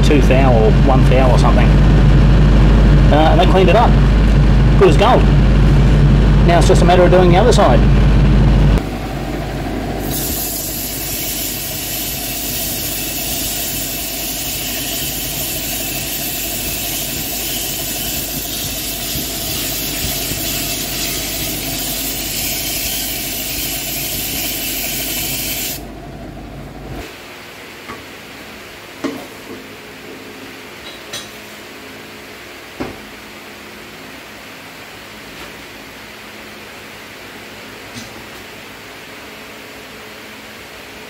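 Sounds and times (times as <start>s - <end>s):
lathe humming: 0.0s - 27.0s
sandpaper hissing on metal drum: 10.0s - 25.8s.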